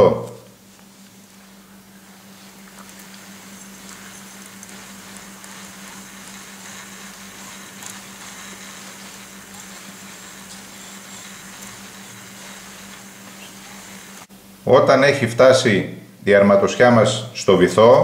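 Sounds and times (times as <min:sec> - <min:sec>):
low hum: 0:00.0 - 0:14.6
fishing reel spool whirring: 0:02.2 - 0:14.3.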